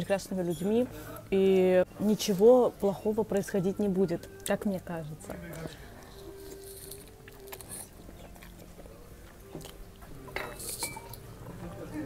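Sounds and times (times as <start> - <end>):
person chewing a dumpling: 5.4 - 10.4.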